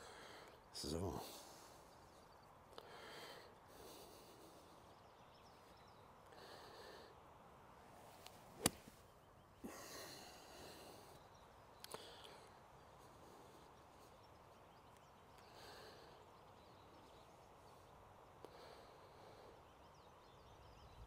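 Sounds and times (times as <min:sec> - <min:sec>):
golf club striking ball: 0:08.6 - 0:09.0.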